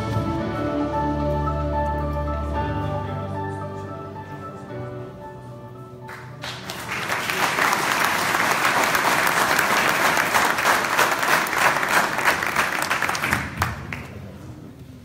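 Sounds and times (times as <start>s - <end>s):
audience applauding: 6.1s - 14.3s.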